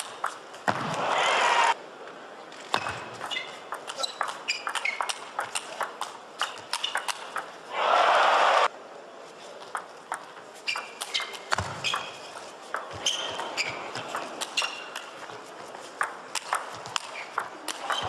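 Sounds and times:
crowd applause: 1.0s - 1.8s, 7.7s - 8.7s
table tennis ball clicking: 2.8s - 7.6s, 16.0s - 18.0s.

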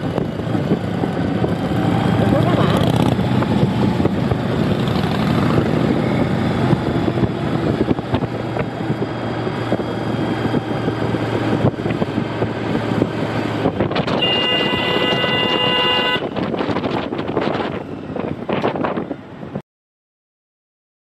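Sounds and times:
motorcycle engine running: 0.0s - 17.7s
wind buffeting microphone: 0.0s - 19.6s
vehicle horn long note: 14.1s - 16.3s.

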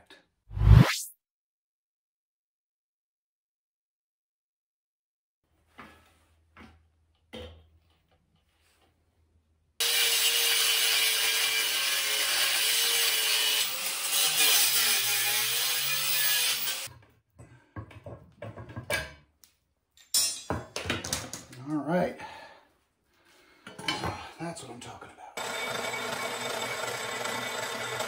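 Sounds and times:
angle grinder cutting steel: 9.8s - 16.9s, 25.4s - 28.0s.

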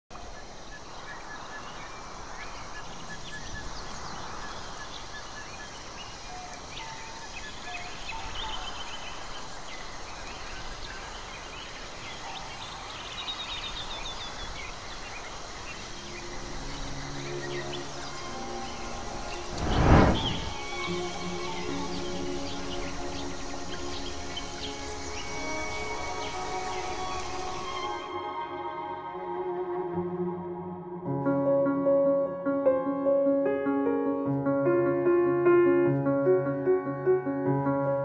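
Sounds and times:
steady hiss: 14.7s - 28.0s.

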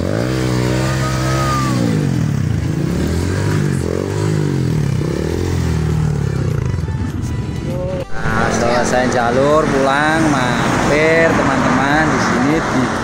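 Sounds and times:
motorcycle engine revving: 0.0s - 6.9s.

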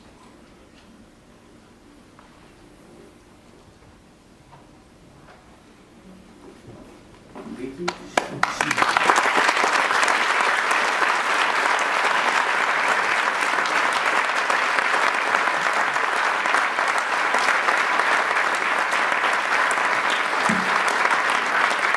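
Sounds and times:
audience applauding: 7.6s - 21.9s.

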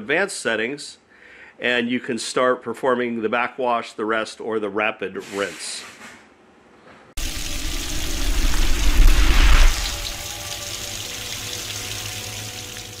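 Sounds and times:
rushing splashing water: 7.2s - 13.0s.

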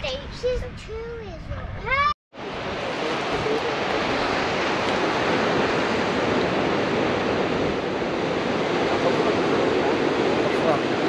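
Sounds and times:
wind buffeting microphone: 0.0s - 11.0s
ocean surf: 2.4s - 11.0s.

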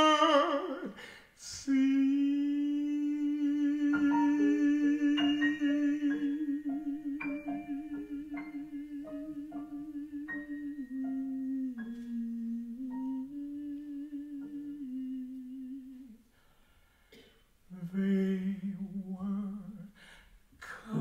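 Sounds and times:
man singing long note: 0.0s - 16.1s.

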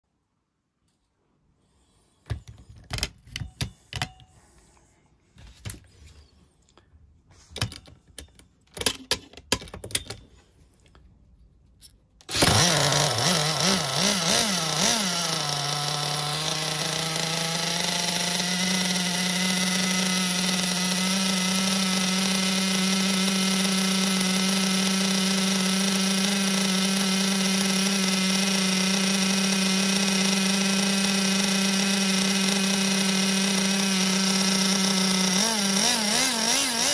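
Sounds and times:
model engine starting and running: 12.2s - 36.9s.

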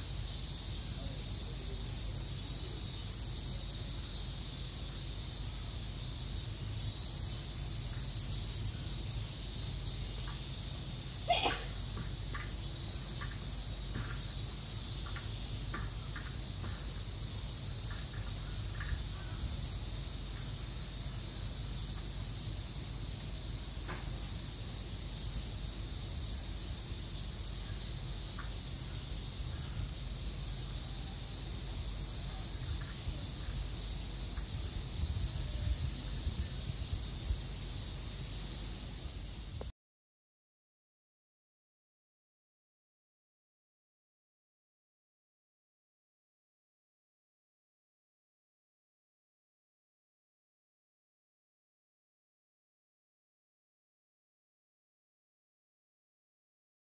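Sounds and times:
high-pitched insect drone: 0.0s - 39.7s.

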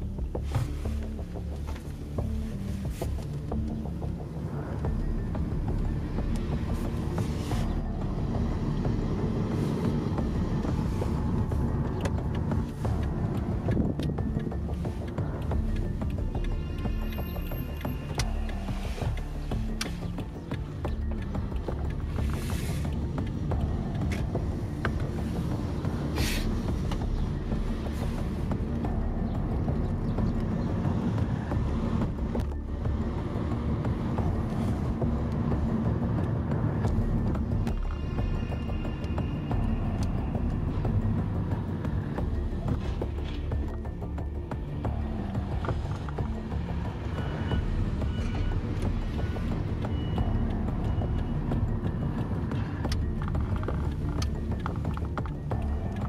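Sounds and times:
car road rumble inside cabin: 0.0s - 56.0s.

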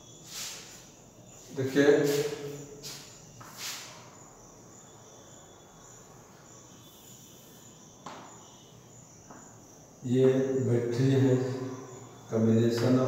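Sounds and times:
chalk scraping on blackboard: 0.3s - 0.9s, 2.0s - 4.0s.

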